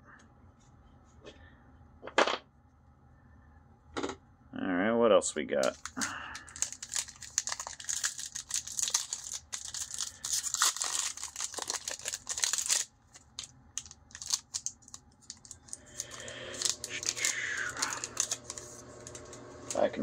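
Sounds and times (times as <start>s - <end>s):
cards rustling and clicking: 5.6s - 19.8s
foil wrapper crinkling and tearing: 5.6s - 19.8s.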